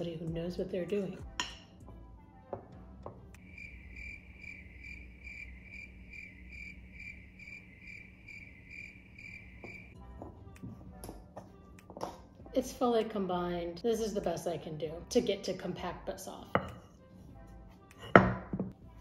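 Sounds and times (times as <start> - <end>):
cricket chirping: 3.4 - 10.0.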